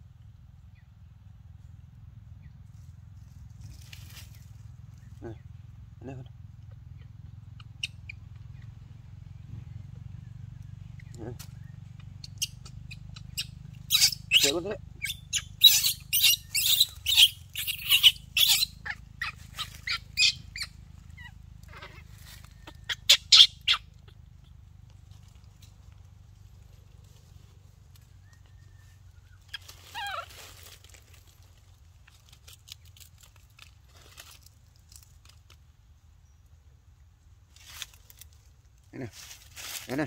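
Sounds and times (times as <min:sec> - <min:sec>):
baby monkey high-pitched squeaks: 0:06.8 - 0:08.6, 0:10.9 - 0:24.6, 0:29.2 - 0:30.7.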